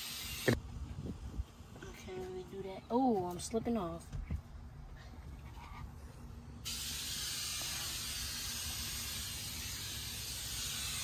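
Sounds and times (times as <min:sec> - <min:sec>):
spray nozzle hissing: 0:06.7 - 0:11.0.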